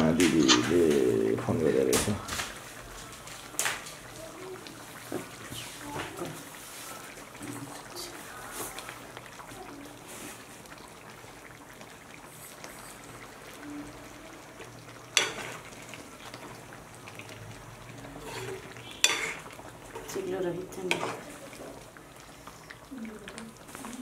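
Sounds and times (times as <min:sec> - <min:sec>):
gravy simmering and sizzling in a wok: 0:00.0 - 0:24.0
spoon stirring in a pan: 0:11.5 - 0:24.0.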